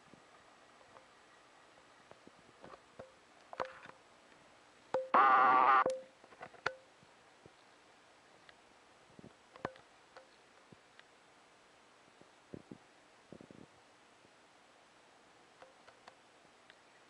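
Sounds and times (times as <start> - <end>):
faint clicks: 15.6 - 16.9.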